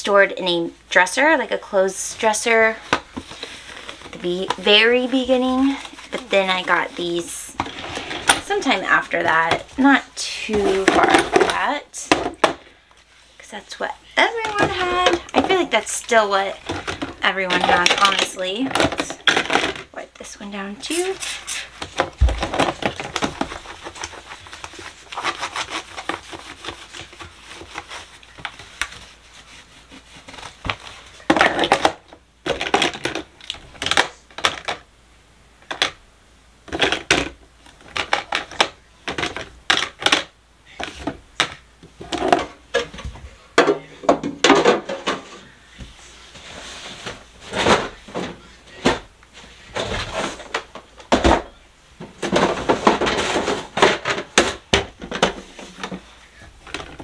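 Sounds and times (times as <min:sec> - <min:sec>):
rubbing on plastic bin: 0:01.3 - 0:12.0, 0:13.2 - 0:19.2, 0:20.2 - 0:31.3
plastic items clicking in bins: 0:14.4 - 0:21.2, 0:21.8 - 0:29.0, 0:30.3 - 0:34.9, 0:36.7 - 0:45.3, 0:49.8 - 0:57.0.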